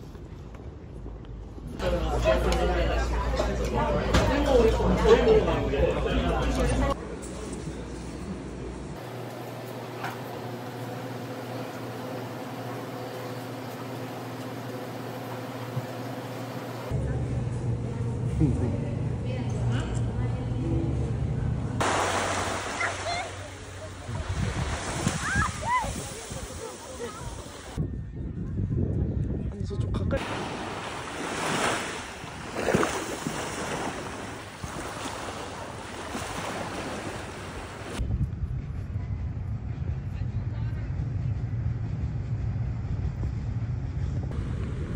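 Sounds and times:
waves breaking on shore: 21.8s - 27.8s, 30.2s - 38.0s
wind rumble on microphone: 24.0s - 30.4s, 37.8s - 44.9s.

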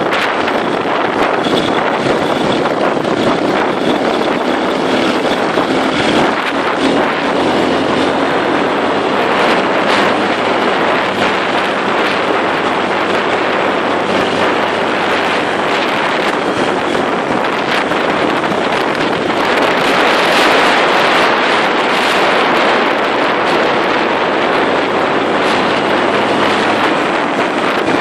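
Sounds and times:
dirt bike engine running: 0.0s - 28.0s
wind buffeting microphone: 0.0s - 28.0s.

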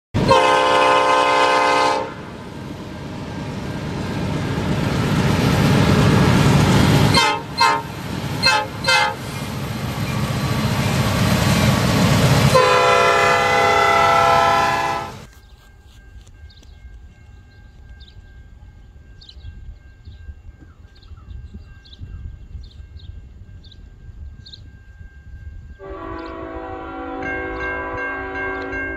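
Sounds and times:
locomotive air horn blasts: 0.2s - 2.4s, 7.0s - 9.5s, 12.0s - 15.3s, 25.8s - 28.9s
train engine rumble: 0.2s - 28.9s.

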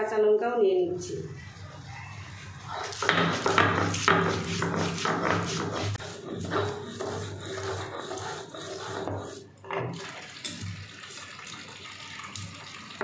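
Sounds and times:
stone grinding on stone: 2.9s - 9.5s.

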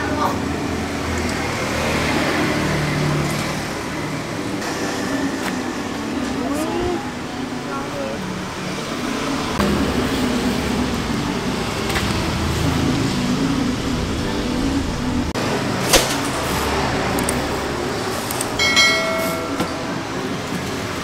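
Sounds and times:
busy outdoor market noise: 0.0s - 21.0s
short bell-like chime: 18.6s - 19.8s.

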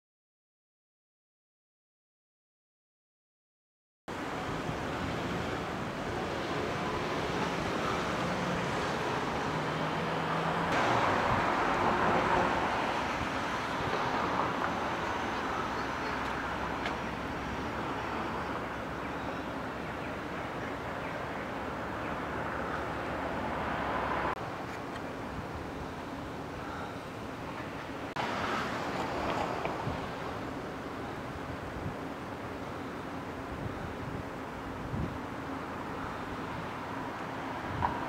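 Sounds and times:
road traffic: 4.1s - 38.0s
vehicle passing: 5.2s - 19.1s, 21.3s - 24.4s.

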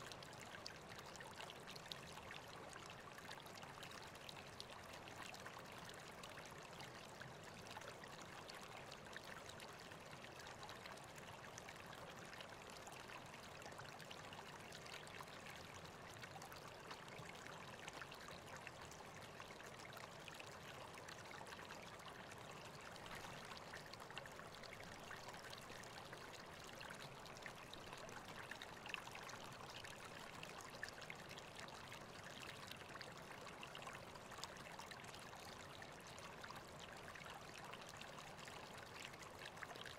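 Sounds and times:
river water flowing: 20.2s - 39.6s.

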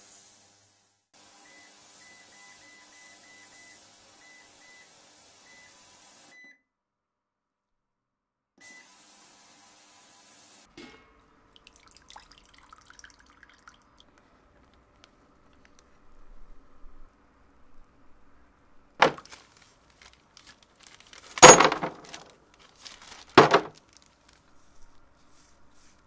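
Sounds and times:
ultrasonic cleaner hissing: 0.0s - 6.3s, 8.6s - 10.7s
water pouring and splashing: 11.5s - 14.1s.

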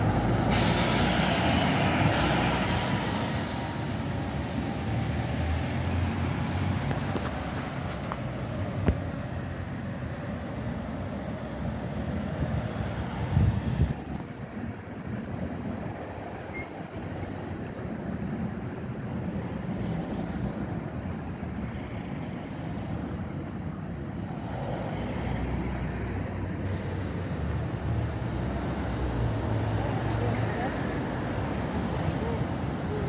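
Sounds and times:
bus engine running: 0.0s - 10.2s
street traffic noise: 0.0s - 33.0s.

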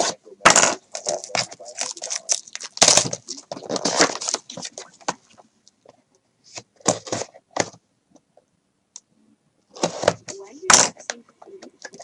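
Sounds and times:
wrapper and cardboard crackling: 0.6s - 5.2s.

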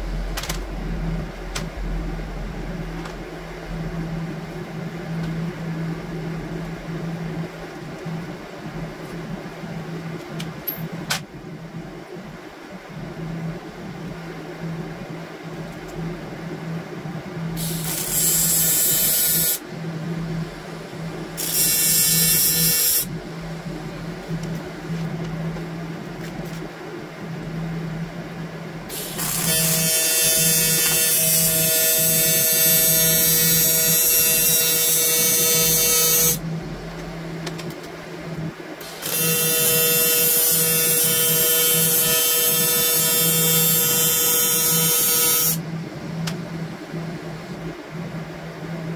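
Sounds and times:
steady low hum: 0.0s - 48.9s
welding arc buzzing: 17.5s - 19.7s, 20.5s - 25.6s, 28.9s - 37.7s, 38.8s - 45.6s.

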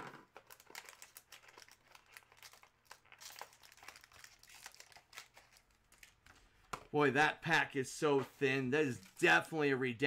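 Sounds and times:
foil pack crinkling: 0.3s - 6.4s.

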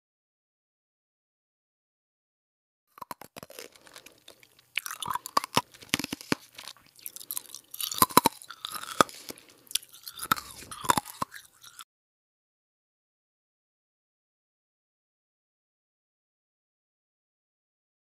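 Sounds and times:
dog crunching food: 2.9s - 11.8s.

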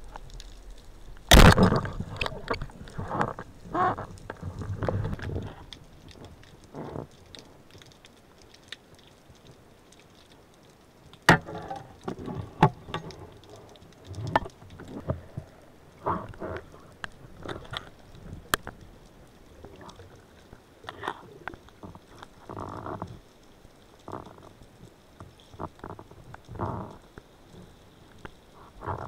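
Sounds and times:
underwater clicks and knocks: 1.2s - 8.5s, 11.1s - 18.9s, 20.9s - 23.2s.

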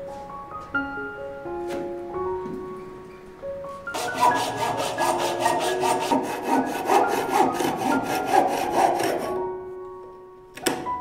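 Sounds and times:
hand saw cutting branch: 4.0s - 9.4s.

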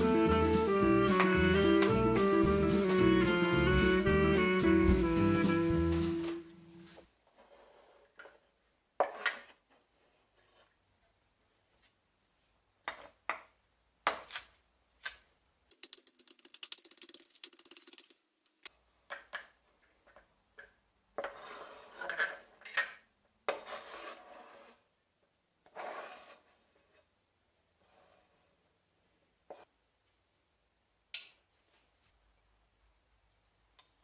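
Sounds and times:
knife scraping across board: 6.8s - 10.8s, 21.2s - 24.8s, 25.7s - 27.1s.

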